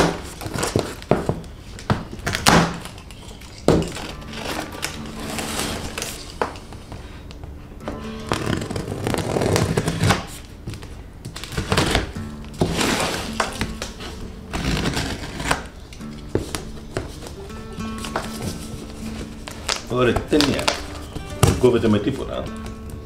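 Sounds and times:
knife scraping along packing tape: 8.3 - 10.5, 11.5 - 16.0
plastic strapping band snapping: 19.4 - 21.7.

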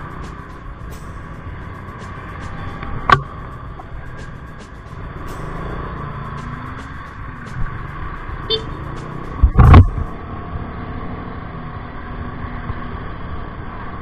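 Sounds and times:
scooter engine pulling away: 0.0 - 9.4
thump on the microphone: 9.4 - 10.1.

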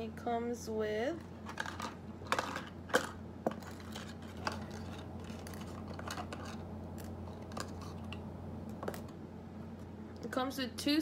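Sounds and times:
steady low hum: 0.0 - 11.0
plastic items clicking and rustling: 1.4 - 8.2.

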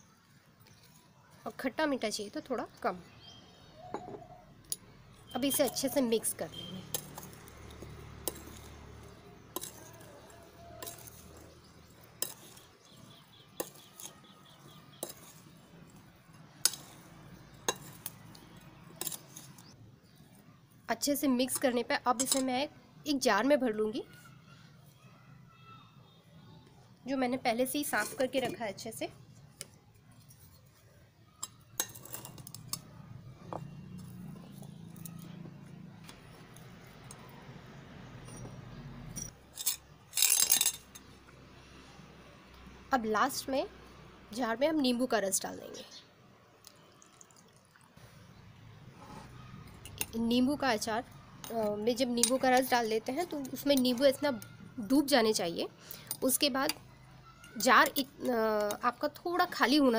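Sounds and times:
metal spoon clinking against bowl: 6.9 - 11.5, 21.6 - 22.6, 31.4 - 32.9, 38.2 - 41.1, 51.4 - 54.5
spoon stirring and clinking bowl: 6.9 - 16.0, 16.6 - 19.7, 21.5 - 22.6, 31.4 - 32.9, 51.4 - 54.5.

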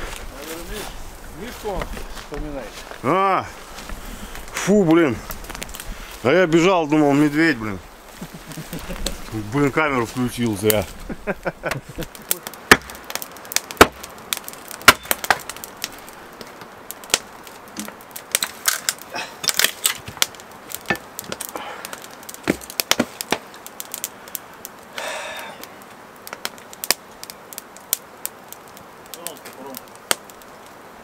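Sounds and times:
axe chopping wood: 12.7 - 14.1, 14.8 - 15.5, 22.4 - 23.4.

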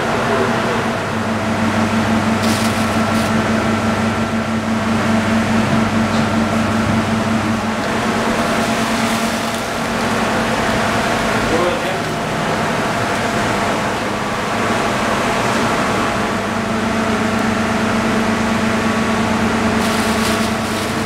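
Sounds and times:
machine hum: 0.0 - 21.0.

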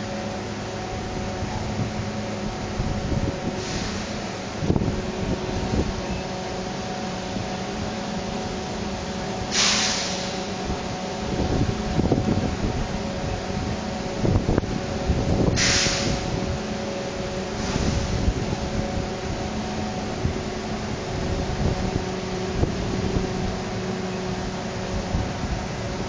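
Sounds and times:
machine drone: 0.0 - 26.0
short sharp hiss: 3.6 - 4.2, 9.5 - 10.4, 15.6 - 16.2.

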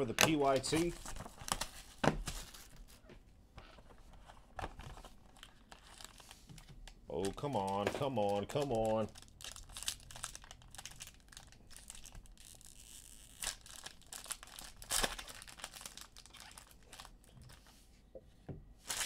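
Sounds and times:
foil wrapper crinkling: 4.6 - 6.4, 7.1 - 17.6.

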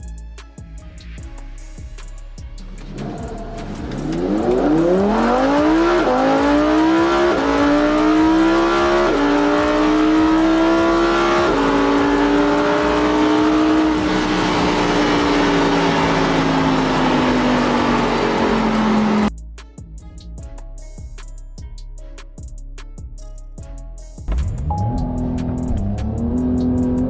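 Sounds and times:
car engine accelerating: 2.6 - 19.3, 24.3 - 27.0.

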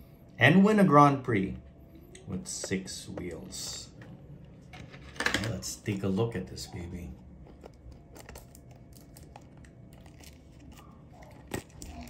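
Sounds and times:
packaging crinkling: 7.2 - 12.0.

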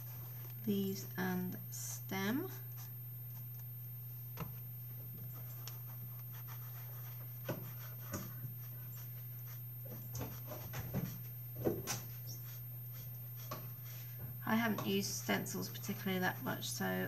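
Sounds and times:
steady low hum: 0.0 - 17.0
sponge dabbing and scrubbing card: 5.3 - 14.1.

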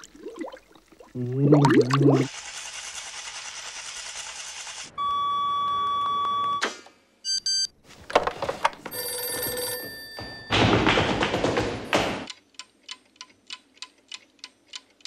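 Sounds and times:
telephone electronic ring: 8.9 - 10.5
flamenco heel stamping: 10.6 - 12.3.

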